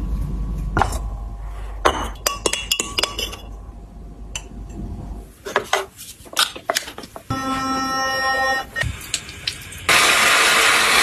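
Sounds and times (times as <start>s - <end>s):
low steady hum: 0.0s - 5.5s
glassware clinking: 1.8s - 3.6s.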